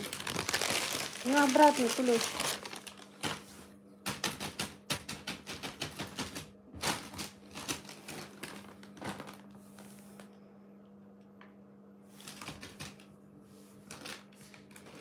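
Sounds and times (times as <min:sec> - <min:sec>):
plastic bag crinkling: 0:00.0 - 0:03.6, 0:06.8 - 0:10.3, 0:13.9 - 0:15.0.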